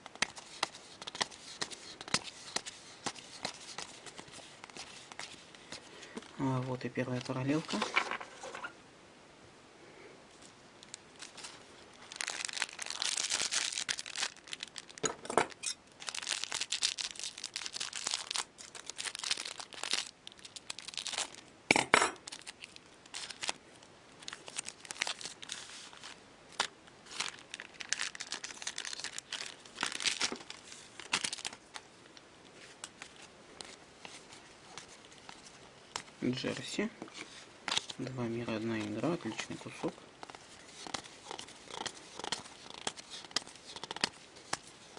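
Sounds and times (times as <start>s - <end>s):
cards shuffling: 0.0s - 6.3s, 32.6s - 44.9s
foil packs crinkling and tearing: 10.8s - 15.1s, 16.0s - 21.4s, 22.2s - 23.6s, 24.2s - 31.8s, 37.6s - 44.9s.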